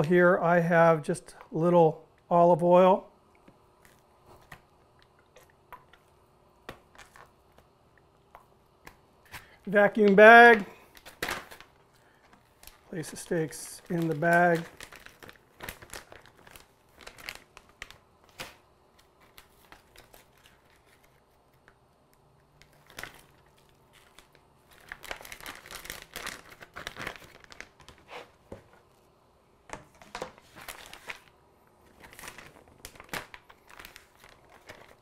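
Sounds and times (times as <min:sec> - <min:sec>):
plastic bag crinkling: 0:09.4 - 0:21.4, 0:22.6 - 0:28.5, 0:30.0 - 0:35.0.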